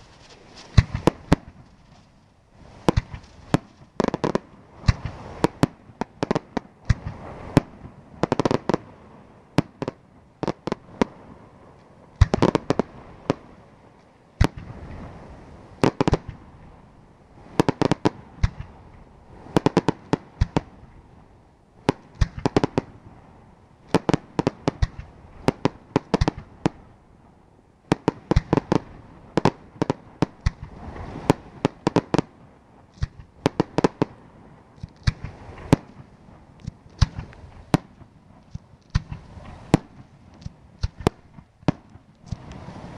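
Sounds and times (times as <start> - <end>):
firework shells bursting: 0.0 - 2.2.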